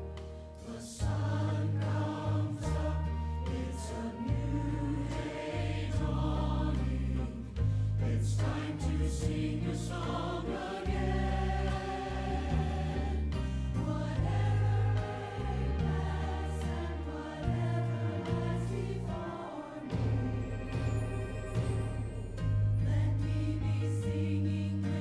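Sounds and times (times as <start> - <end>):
choir singing a hymn: 0.6 - 25.0
instrumental accompaniment: 13.4 - 25.0.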